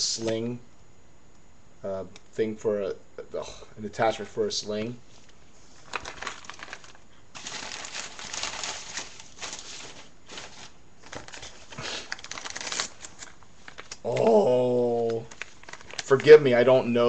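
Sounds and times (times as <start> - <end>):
plastic packaging crinkling: 5.8 - 16.7
small clicks and rustles: 13.0 - 14.3, 15.0 - 16.4.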